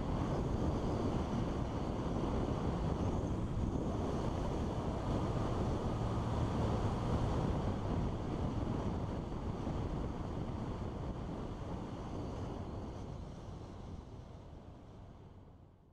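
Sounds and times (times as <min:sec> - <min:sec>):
wind rushing over microphone: 0:00.0 - 0:14.4
road noise: 0:04.2 - 0:09.8.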